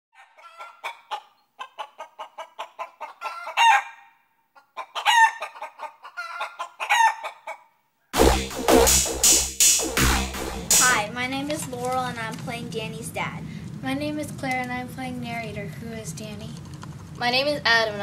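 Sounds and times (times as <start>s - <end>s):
chicken clucking: 0.2s - 7.7s
music with a beat: 8.2s - 11.1s.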